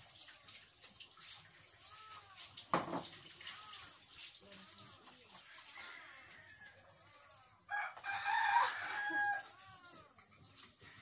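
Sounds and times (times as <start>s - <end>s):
rooster crowing: 7.7s - 10.0s.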